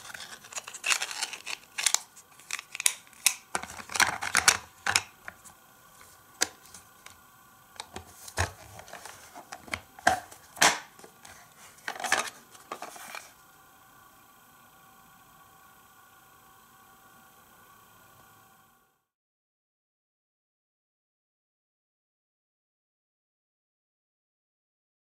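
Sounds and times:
plastic toy parts clacking: 0:00.0 - 0:05.5, 0:07.8 - 0:13.3
plastic case clicking shut: 0:00.9 - 0:05.4, 0:07.8 - 0:11.2.

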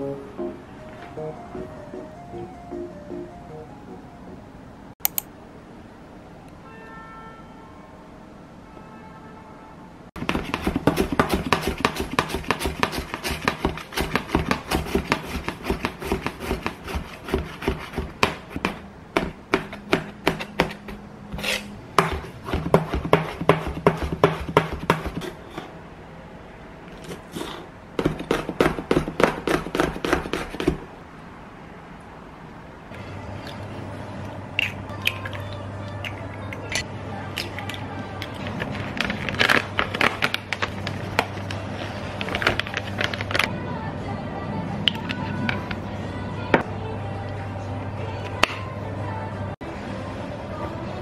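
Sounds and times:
knife chopping on cutting board: 0:10.2 - 0:25.7, 0:28.0 - 0:30.8.

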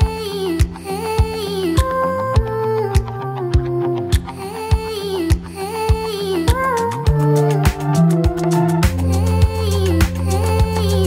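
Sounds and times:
sustained melody: 0:07.0 - 0:11.0.

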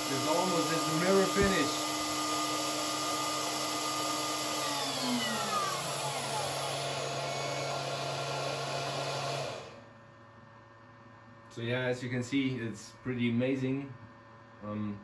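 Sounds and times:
router spindle whining: 0:00.0 - 0:09.8.

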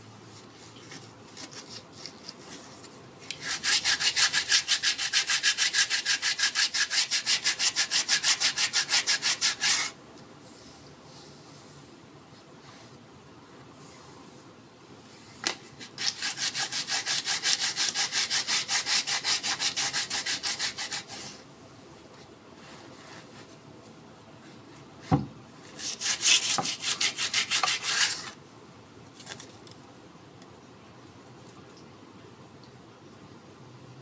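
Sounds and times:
sandpaper rubbing on wood: 0:03.4 - 0:10.0, 0:15.9 - 0:21.4, 0:25.8 - 0:28.4
thump: 0:25.1 - 0:25.4.

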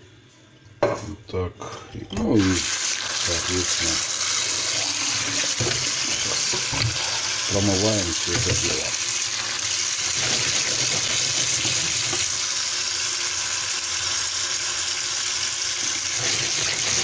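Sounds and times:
tap water running onto fish: 0:05.1 - 0:12.6.

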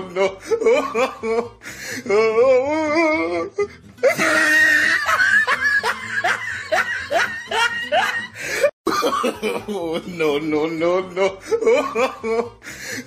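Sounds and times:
person laughing hard: 0:00.0 - 0:02.4, 0:03.6 - 0:10.0, 0:11.0 - 0:13.0.

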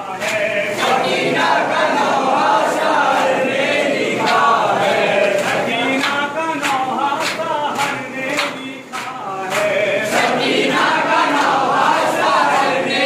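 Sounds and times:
men chanting in unison: 0:00.0 - 0:13.0.

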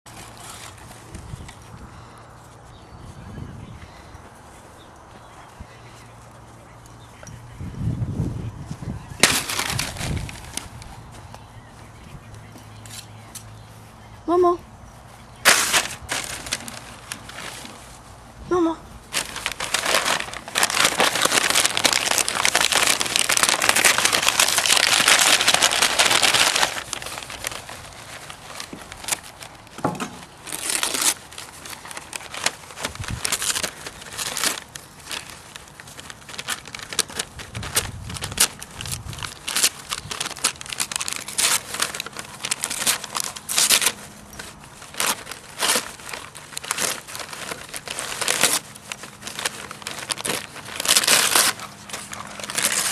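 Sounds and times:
wrapping paper crinkling and tearing: 0:00.1 - 0:01.4, 0:09.1 - 0:11.2, 0:15.4 - 0:52.9.

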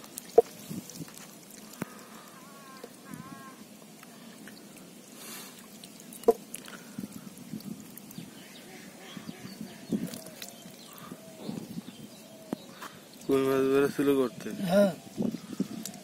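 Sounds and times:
small splashes: 0:00.0 - 0:03.2, 0:03.8 - 0:11.3.

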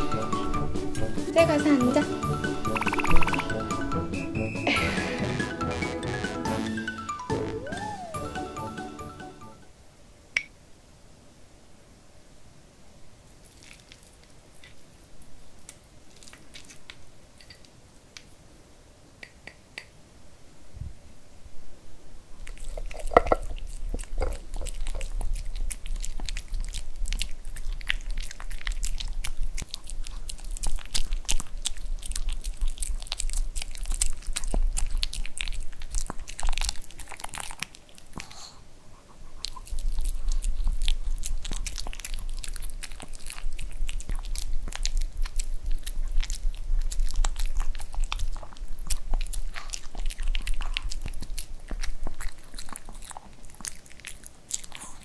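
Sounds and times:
dog chewing wet food: 0:13.4 - 0:17.6, 0:22.4 - 0:55.0.

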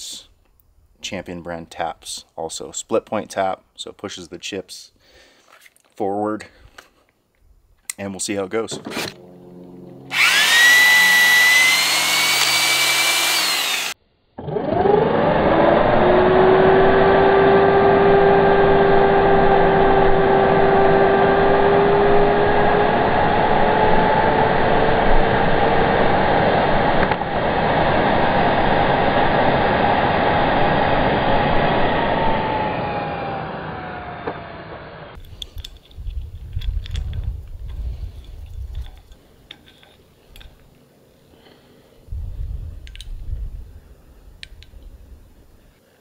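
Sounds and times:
tapping drill motor whining: 0:09.1 - 0:17.1, 0:31.7 - 0:35.2.

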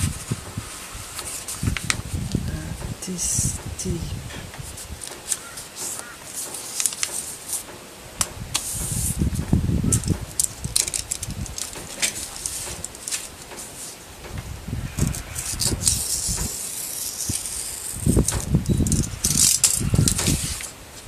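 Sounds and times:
paper rustling: 0:00.0 - 0:02.4, 0:04.6 - 0:07.7, 0:09.9 - 0:14.1, 0:15.0 - 0:21.0
wind buffeting microphone: 0:00.0 - 0:05.8, 0:08.0 - 0:21.0.

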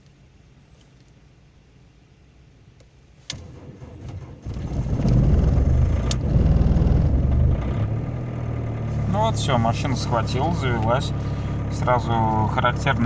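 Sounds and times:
starter cranking: 0:03.4 - 0:08.4
diesel engine running: 0:03.8 - 0:13.0.

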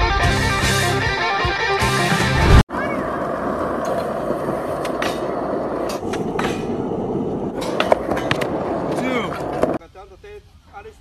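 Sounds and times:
skateboard wheels rolling on concrete: 0:00.2 - 0:11.0
skateboard clacks: 0:03.0 - 0:09.8.

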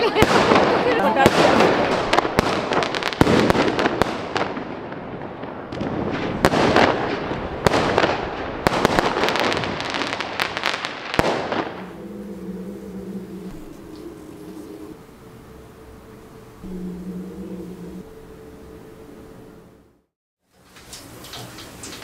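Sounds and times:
fireworks bangs and crackling: 0:00.0 - 0:11.9
low steady hum: 0:11.8 - 0:20.1.

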